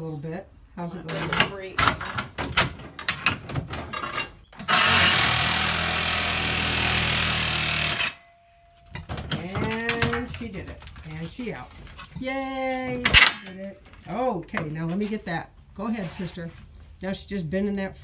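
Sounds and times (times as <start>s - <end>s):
reciprocating saw cutting: 4.7s - 8.3s.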